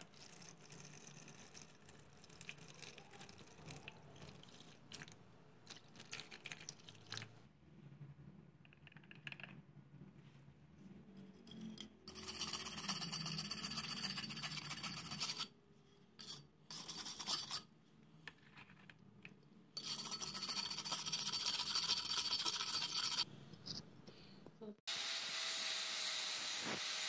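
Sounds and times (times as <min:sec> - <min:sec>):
brush scrubbing steel: 0:12.1 - 0:15.5, 0:19.8 - 0:23.3.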